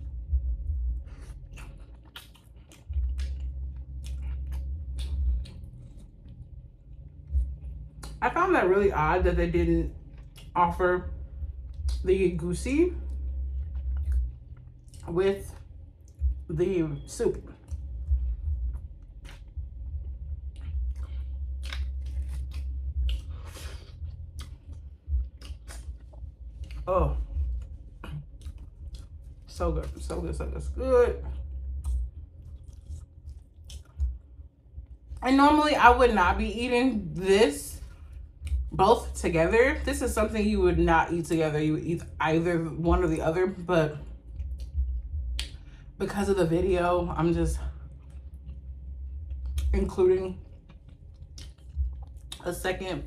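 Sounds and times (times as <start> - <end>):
low rumble: 0.0 - 53.0
wet chewing and lip smacks: 1.0 - 8.2, 10.0 - 10.6, 13.1 - 16.4, 17.5 - 30.1, 31.3 - 35.2, 44.1 - 45.8, 47.8 - 49.8, 50.4 - 52.5.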